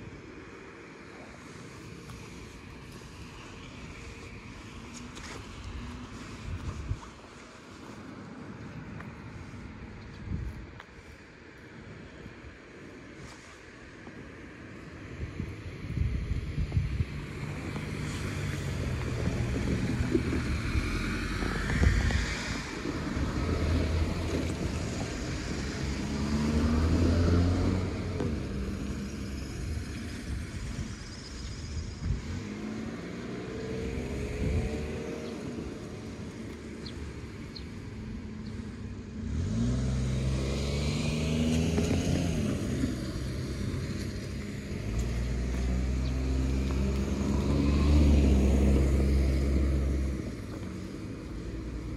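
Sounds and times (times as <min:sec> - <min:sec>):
vehicles passing and accelerating: 0:00.0 - 0:51.9.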